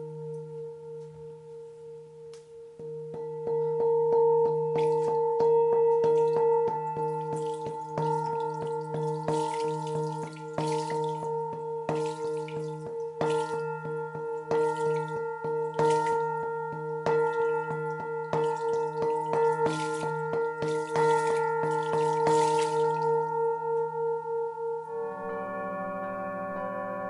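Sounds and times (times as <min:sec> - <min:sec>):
singing bowl ringing hum: 0:00.0 - 0:27.0
singing bowl struck with mallet: 0:02.8 - 0:24.1.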